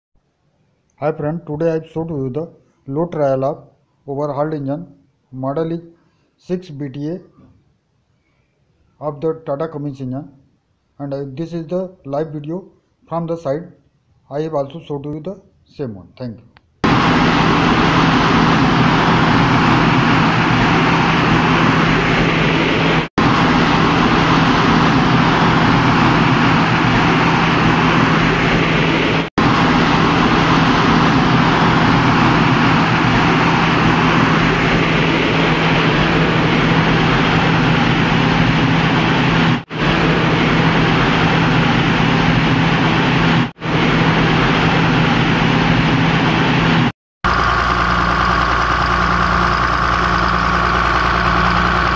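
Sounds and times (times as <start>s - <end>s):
diesel generator running: 16.8s - 51.9s.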